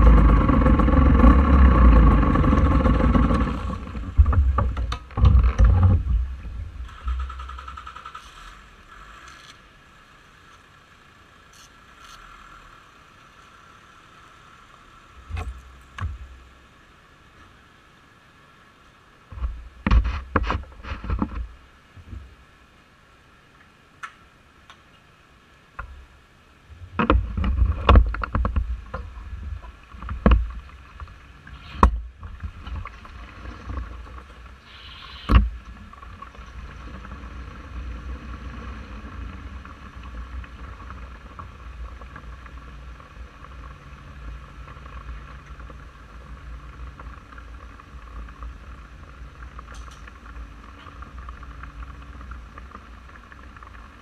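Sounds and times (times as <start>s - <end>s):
scooter engine starting and idling: 0.0s - 4.2s, 6.8s - 8.6s.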